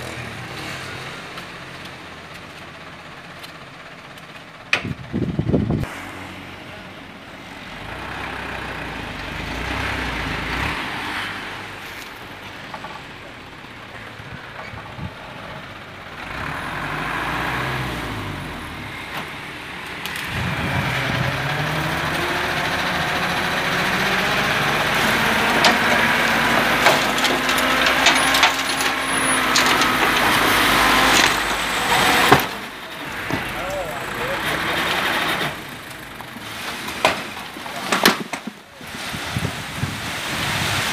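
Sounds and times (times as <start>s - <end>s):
diesel engine revving: 0.0s - 40.9s
soil and stones sliding out: 24.4s - 32.6s, 36.3s - 40.9s.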